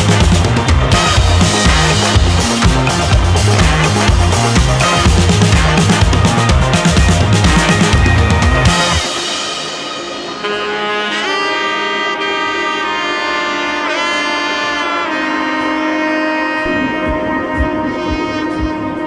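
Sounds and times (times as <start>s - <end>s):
low drum beat: 0.0s - 9.7s, 16.6s - 19.0s
slow melody of held notes: 14.9s - 19.0s.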